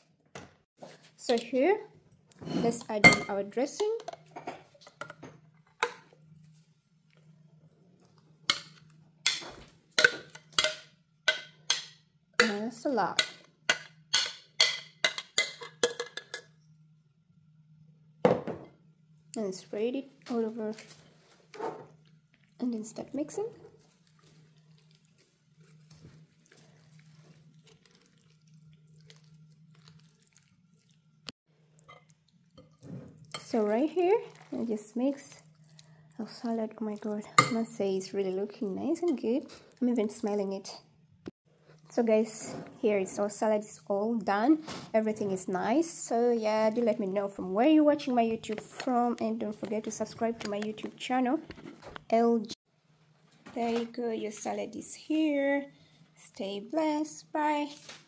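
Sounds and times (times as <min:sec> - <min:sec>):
fork mixing pasta salad: 0:23.8 - 0:31.0, 0:31.8 - 0:37.6
thick dressing pouring: 0:23.8 - 0:31.0.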